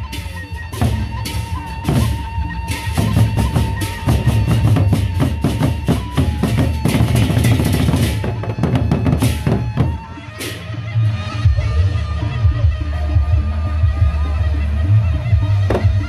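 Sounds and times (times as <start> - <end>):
barrel drums beaten with sticks: 0.0 - 10.1, 15.6 - 16.0
hand cymbals clashing: 0.1 - 10.7.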